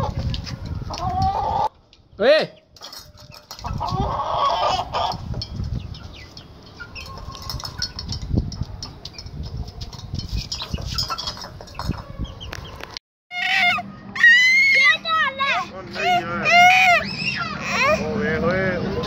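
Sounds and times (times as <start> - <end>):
chickens clucking: 0.0 - 1.8, 2.6 - 13.8.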